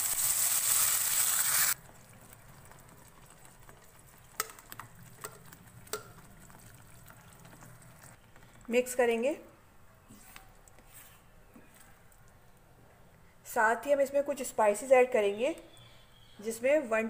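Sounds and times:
hot oil sizzling loudly: 0.0s - 1.8s.

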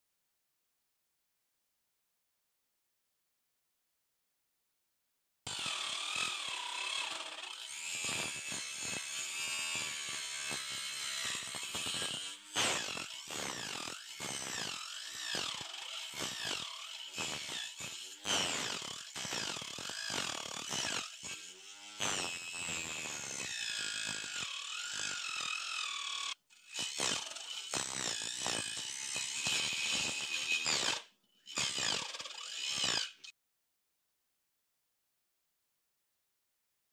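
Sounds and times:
circular saw whining: 5.5s - 33.3s.

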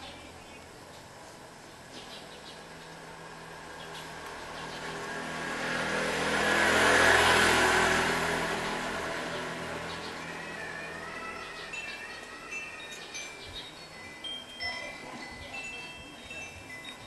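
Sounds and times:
motor scooter driving past: 2.7s - 13.1s.

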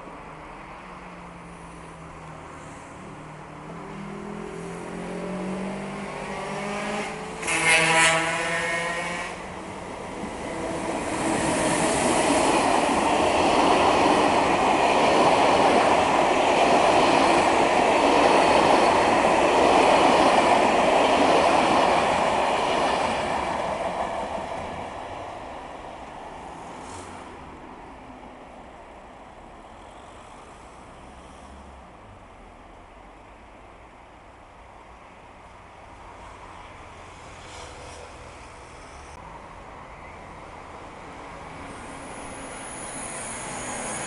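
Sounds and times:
electric train whine: 3.0s - 31.8s, 36.0s - 44.0s
train wheels rushing on rails: 4.4s - 27.8s, 36.1s - 39.2s, 41.0s - 44.0s
train horn blast: 6.6s - 9.5s.

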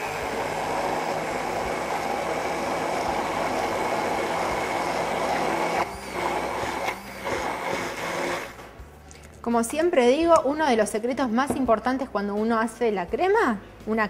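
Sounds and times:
immersion blender running: 0.0s - 8.6s.

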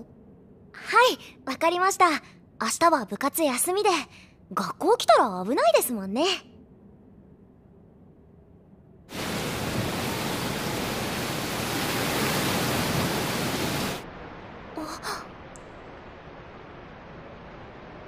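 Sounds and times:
heavy rain pouring: 9.1s - 18.0s
click: 15.5s - 15.8s.

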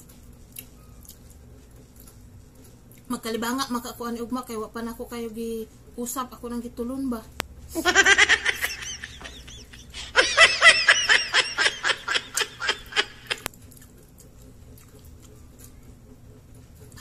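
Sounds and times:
high-pitched laughter: 7.8s - 13.4s.

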